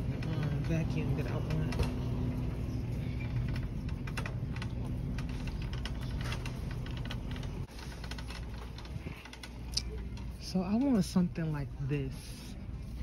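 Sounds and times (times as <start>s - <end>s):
cart clicks and rattles: 0.0s - 2.3s, 3.1s - 11.2s
shopping cart wheels rumbling: 0.0s - 11.8s.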